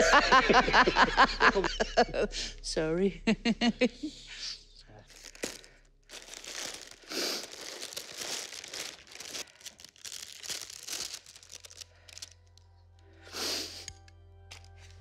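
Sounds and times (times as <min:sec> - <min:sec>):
soft music: 0:00.0 - 0:15.0
plastic wrapping and paper crinkling: 0:05.1 - 0:12.7.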